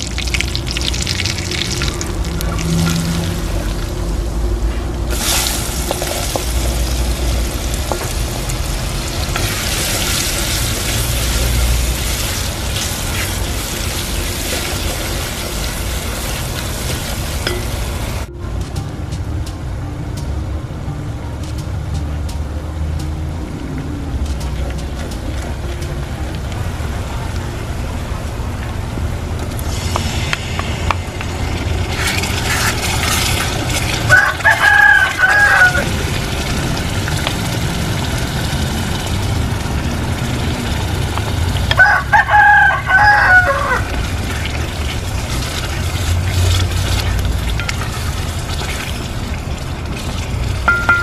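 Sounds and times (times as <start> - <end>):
low rumble: 0.0 - 14.5
rooster crowing: 34.1 - 36.0, 41.7 - 43.9.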